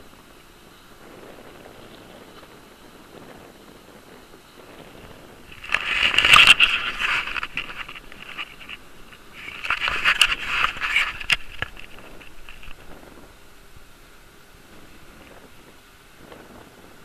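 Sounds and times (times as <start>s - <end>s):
camera handling scraping and rubbing: 5.5s - 12.9s.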